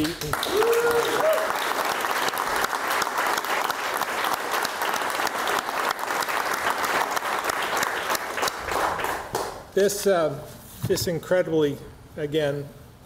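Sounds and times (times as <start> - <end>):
people clapping: 0.0 - 9.7.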